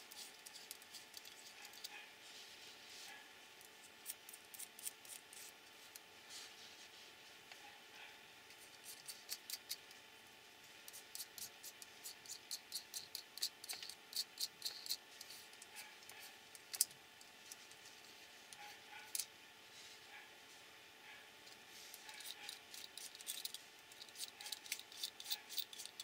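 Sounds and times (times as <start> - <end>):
small metal parts clicking: 12.2 - 15.0, 22.1 - 26.0.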